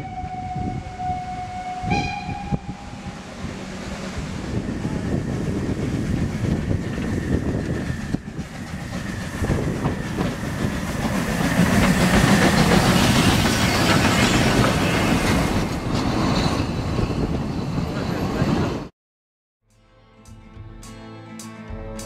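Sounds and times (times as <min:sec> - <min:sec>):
steam locomotive running past: 0:00.0 - 0:18.9
coaches rolling on rails: 0:02.6 - 0:18.9.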